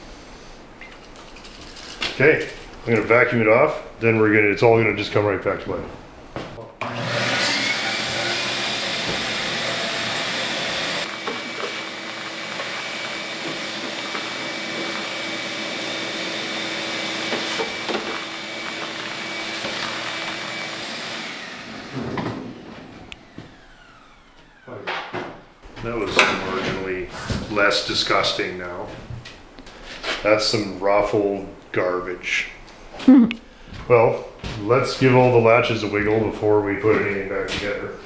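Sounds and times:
vacuum cleaner running: 6.8 - 28.2.

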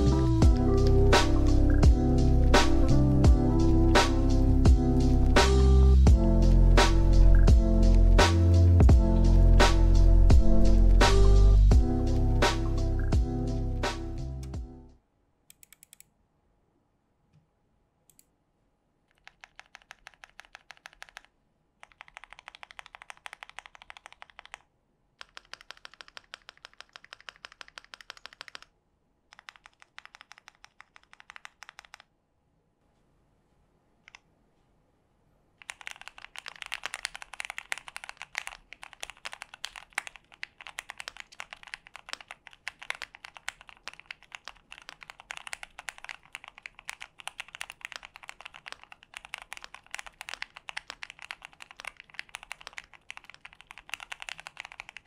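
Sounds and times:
mechanical keyboard typing: 19.1 - 28.7, 29.3 - 32.1, 35.6 - 55.0.

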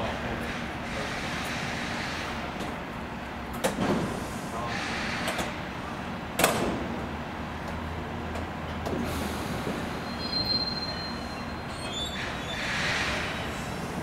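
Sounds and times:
loud air hiss: 4.0 - 5.4, 9.1 - 11.4, 12.2 - 14.0
thin high squeal: 10.1 - 13.4.

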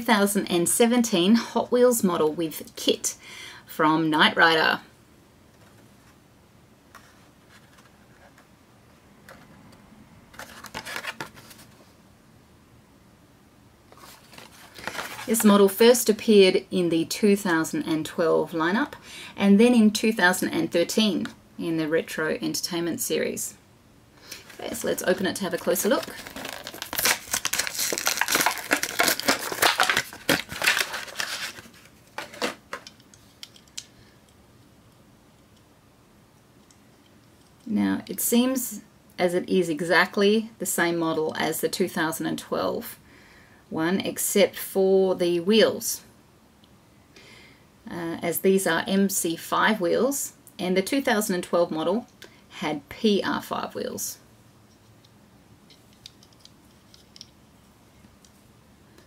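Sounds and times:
plastic packaging crinkling: 10.3 - 11.7, 14.0 - 15.5, 24.4 - 33.8.

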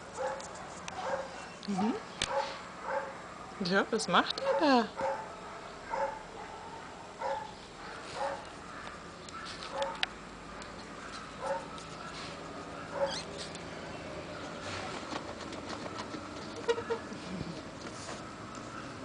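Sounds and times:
dog whimpering in yips: 13.0 - 13.3.

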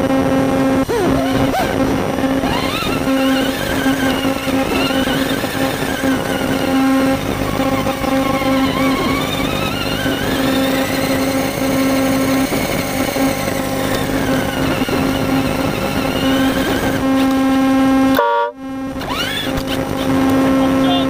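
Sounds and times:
toy car motor whine: 0.7 - 17.7, 19.0 - 20.6.

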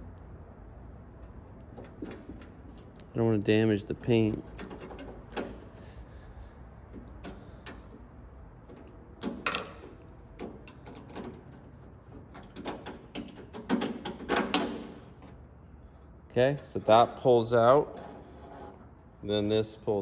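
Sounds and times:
metallic clicks and scrapes: 16.8 - 19.8.

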